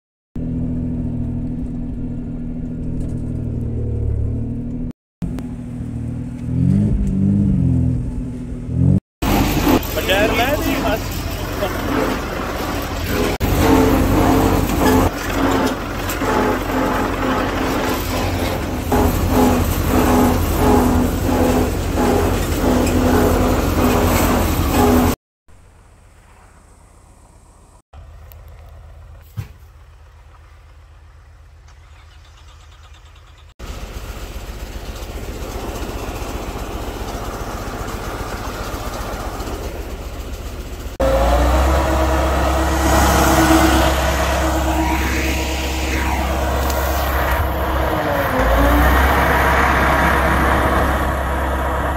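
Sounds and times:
vehicle engine rumbling: 0:00.4 - 0:51.9.

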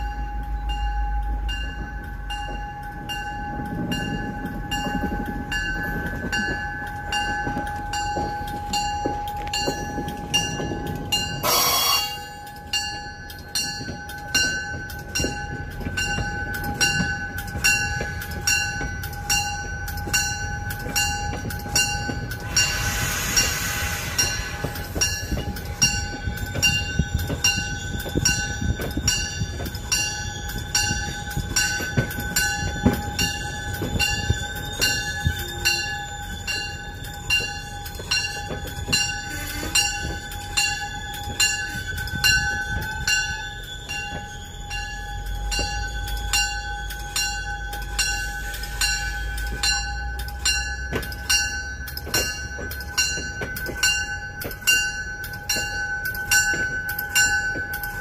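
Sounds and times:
diesel train rumble: 0:00.0 - 0:58.0
short hiss: 0:22.6 - 0:24.8.

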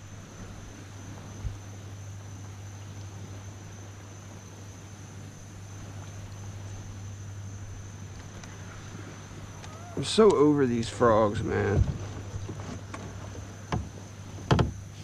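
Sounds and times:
high-pitched insect drone: 0:00.0 - 0:15.0
low steady hum: 0:00.0 - 0:15.0
dull knock: 0:13.7 - 0:14.8.

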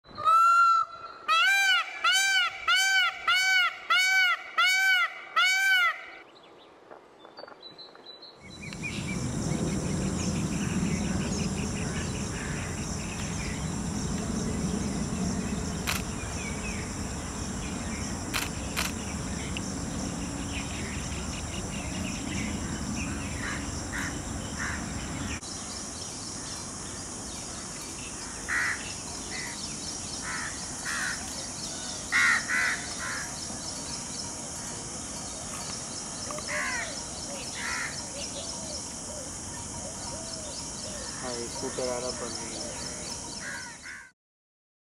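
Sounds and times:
low rumble: 0:08.4 - 0:25.4
faint high hiss: 0:08.4 - 0:32.2.

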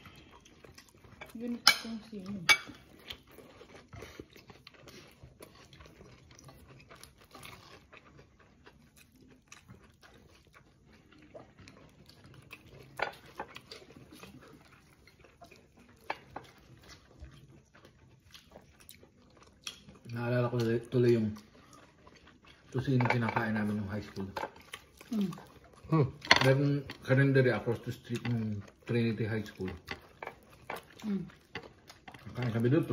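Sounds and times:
faint chewing: 0:00.0 - 0:32.9.

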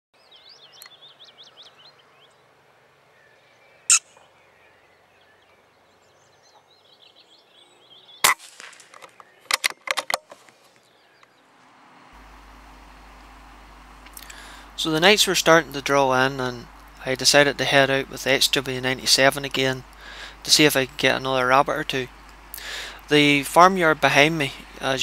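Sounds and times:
birds chirping: 0:00.2 - 0:25.0
sharp gunshot-like cracks: 0:08.2 - 0:09.0.

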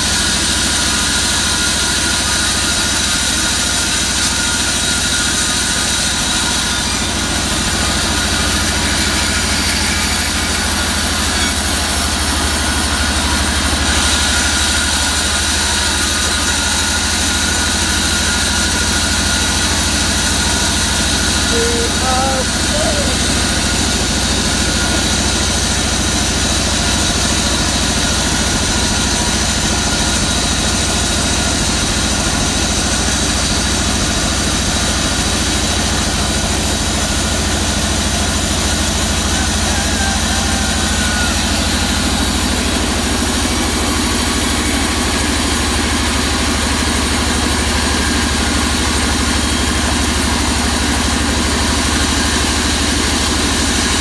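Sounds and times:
band saw mechanical drone: 0:05.6 - 0:54.0.

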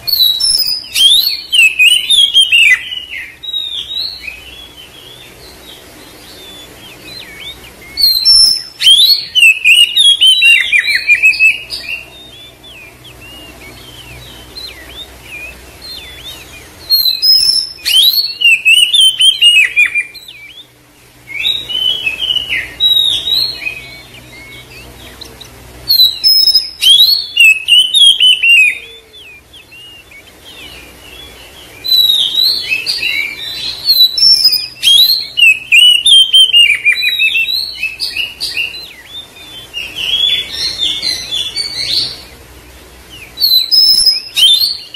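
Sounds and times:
bird singing whistles and chirps: 0:00.0 - 0:42.4, 0:43.0 - 0:44.9.

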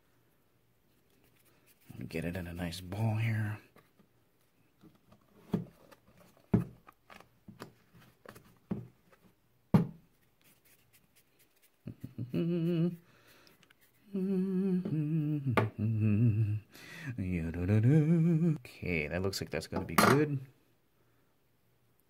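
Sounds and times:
man humming: 0:11.9 - 0:13.1, 0:14.0 - 0:18.6.

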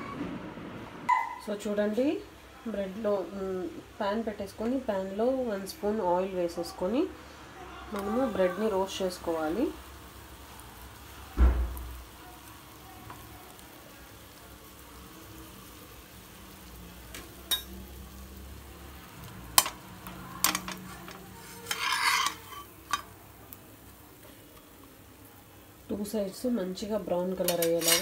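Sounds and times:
bread sizzling in pan: 0:01.8 - 0:28.0
heavy thump: 0:11.4 - 0:11.9
spatula scraping under bread: 0:20.9 - 0:22.8.

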